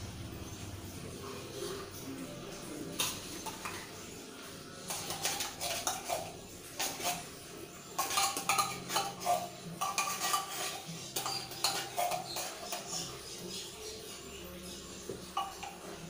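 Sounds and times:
metal spoon scraping in tin can: 4.8s - 14.3s.

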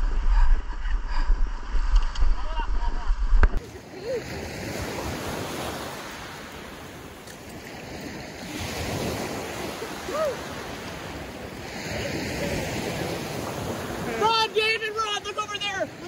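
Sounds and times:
waves washing on gravel shore: 3.6s - 16.0s
short high cry: 10.1s - 10.4s.

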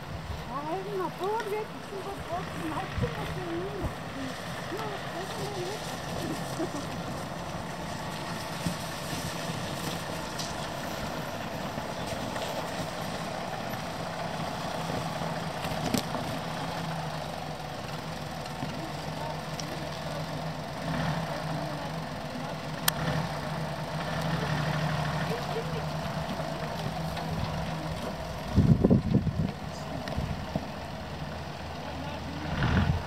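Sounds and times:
engine running at low revs: 0.0s - 33.0s.

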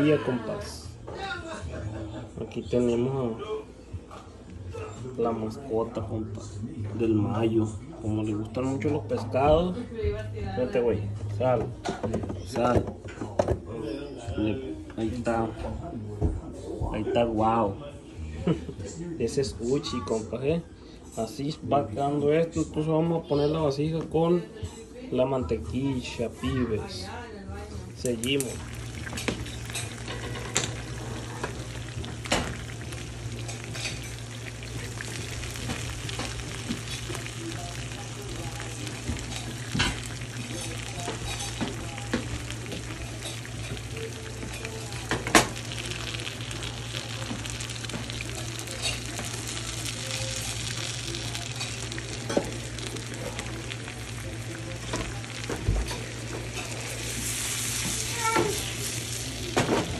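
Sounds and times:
fish sizzling in a pan: 28.0s - 59.9s.

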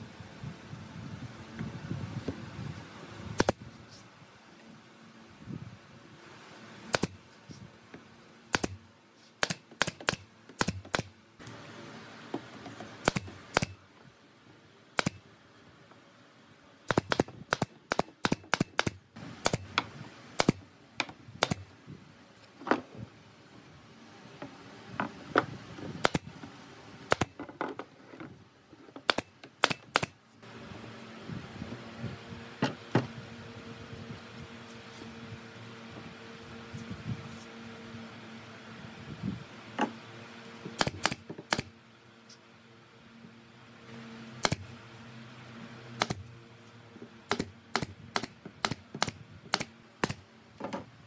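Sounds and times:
nail gun firing: 3.4s - 3.6s, 6.9s - 7.2s, 8.5s - 11.2s, 13.0s - 13.8s, 15.0s - 15.2s, 16.9s - 19.8s, 20.4s - 20.6s, 21.4s - 21.7s, 26.0s - 26.3s, 27.1s - 27.4s, 29.0s - 30.2s, 40.8s - 41.7s, 44.4s - 44.7s, 46.0s - 46.3s, 47.3s - 50.2s.

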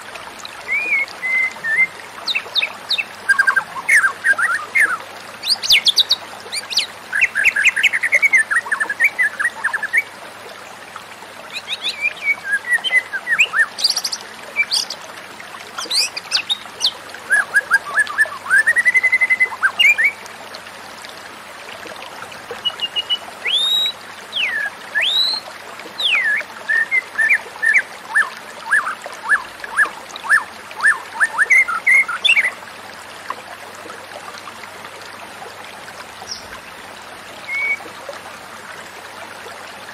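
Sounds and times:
bird singing whistled notes: 0.7s - 2.0s, 15.8s - 20.2s, 22.7s - 25.4s, 37.5s - 37.8s.

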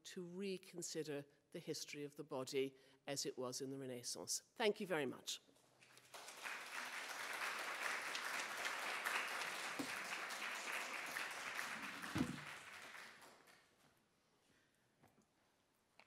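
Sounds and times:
audience clapping: 5.8s - 13.8s.

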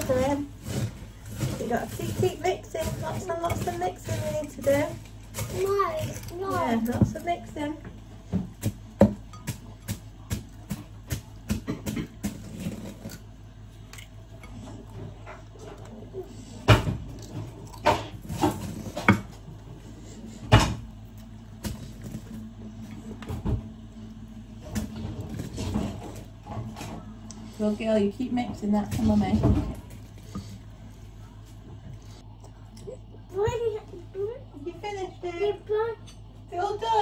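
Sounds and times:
wooden spoon scraping a bowl: 0.0s - 7.1s.

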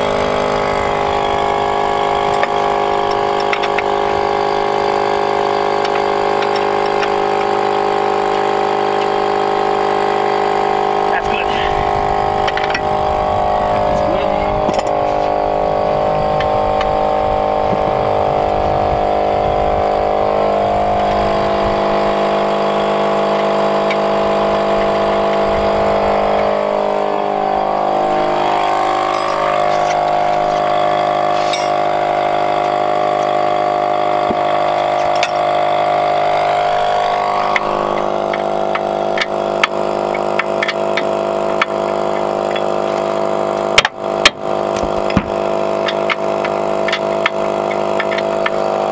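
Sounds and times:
small engine running steadily: 0.0s - 48.9s
short clicks and knocks: 43.8s - 48.6s.

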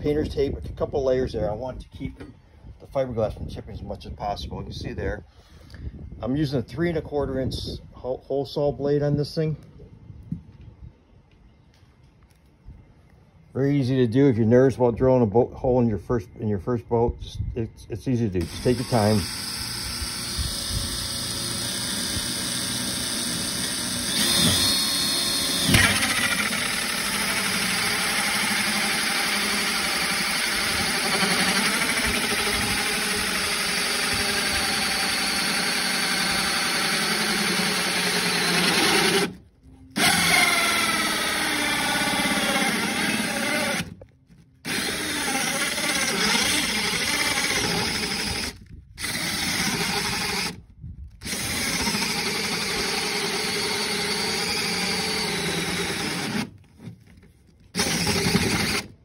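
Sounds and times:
drill hole saw cutting fiberglass: 18.4s - 39.4s, 40.0s - 44.0s, 44.6s - 56.6s, 57.7s - 59.0s.

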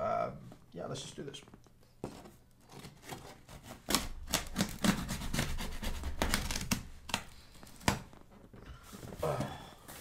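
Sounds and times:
knife cutting cardboard box: 2.1s - 8.0s
tape ripping: 2.6s - 8.2s.

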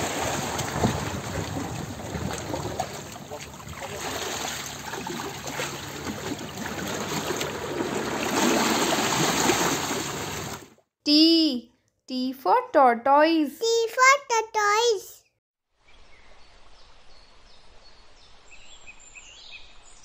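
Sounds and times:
water rushing around a ship: 0.0s - 10.8s.

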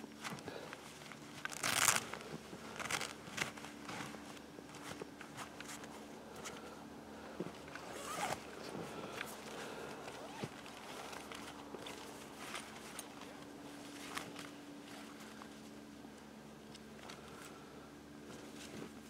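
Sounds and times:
bag rustling and clicking: 0.2s - 6.6s, 7.6s - 8.5s, 9.2s - 14.6s
zipper opening: 1.4s - 3.6s, 7.8s - 8.5s, 10.0s - 11.1s.

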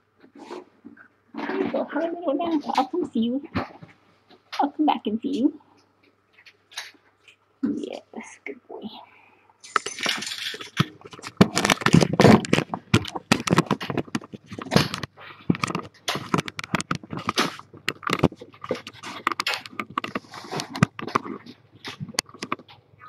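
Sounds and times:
handling noise rustling and knocks: 9.6s - 23.0s.

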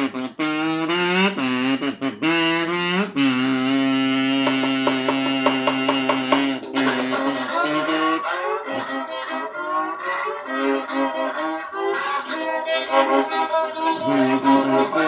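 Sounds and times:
fiddle playing: 3.7s - 15.0s.

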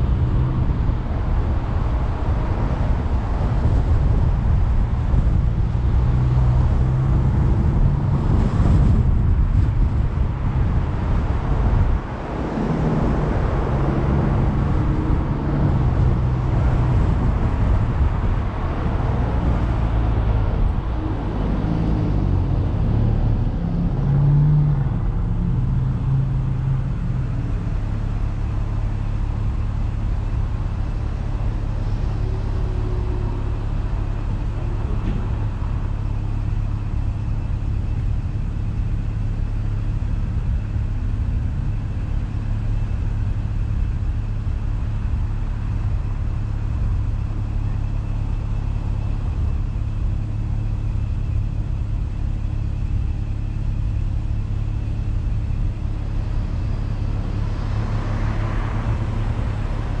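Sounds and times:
car engine idling: 24.8s - 60.0s.

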